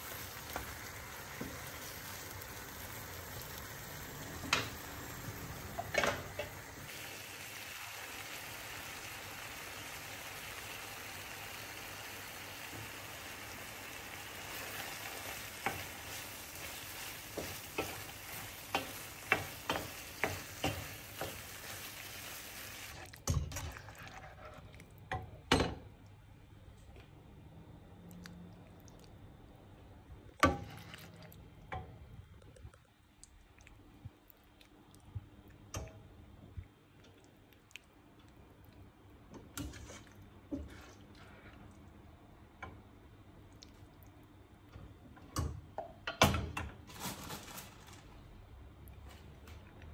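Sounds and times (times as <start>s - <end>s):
food sizzling in a frying pan: 0.0s - 23.0s.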